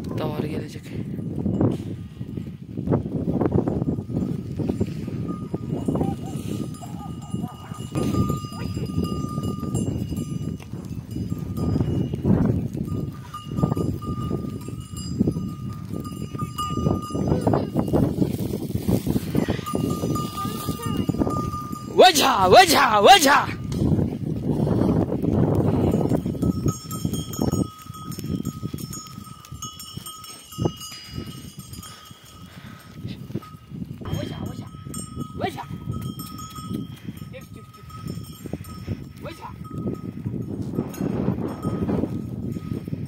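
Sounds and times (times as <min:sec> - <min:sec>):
goat and sheep bells tinkling: 0:00.0 - 0:43.0
rustle of animals moving: 0:10.4 - 0:21.3.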